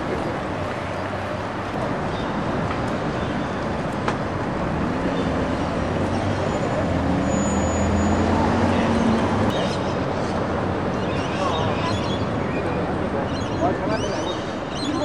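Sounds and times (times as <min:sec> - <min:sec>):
street traffic noise: 0:00.0 - 0:15.0
vehicle engine humming past: 0:04.2 - 0:10.3.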